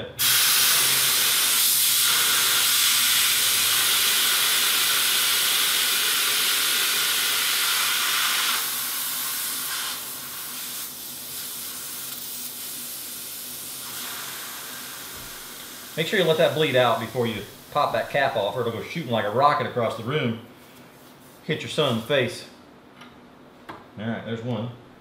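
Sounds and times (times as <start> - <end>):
gas hissing from pipe: 0.0 - 19.7.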